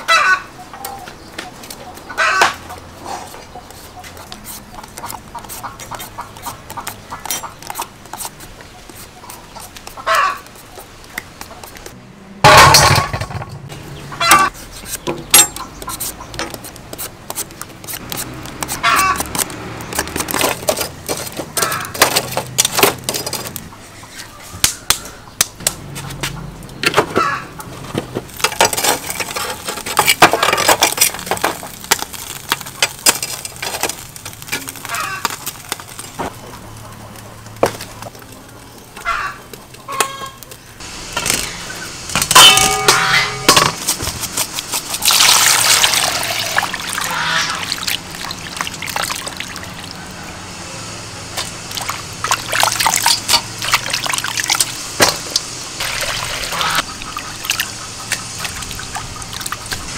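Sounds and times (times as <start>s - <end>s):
food scraping and knocking: 14.3s - 23.6s, 26.2s - 36.4s, 42.2s - 46.3s.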